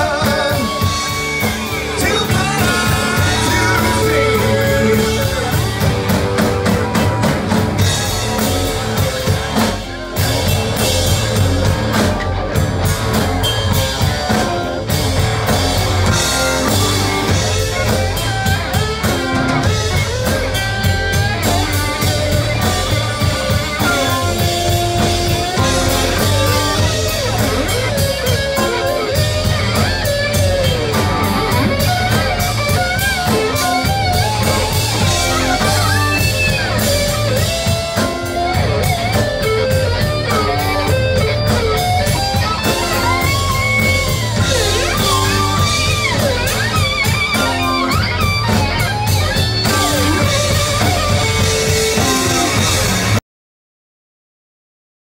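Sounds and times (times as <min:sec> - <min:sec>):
lead electric guitar: 0:00.0 - 0:53.2
rock band playing: 0:00.0 - 0:53.2.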